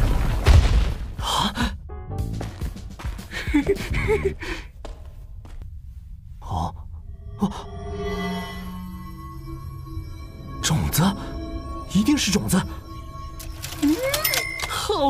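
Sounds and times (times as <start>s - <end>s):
rocks tumbling rumble: 0.0s - 1.2s.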